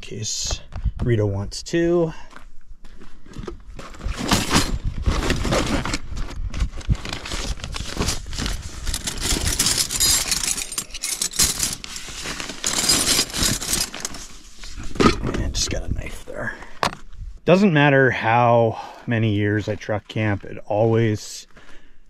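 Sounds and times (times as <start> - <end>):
kitchen gear rattling and scraping: 7.1 - 14.4.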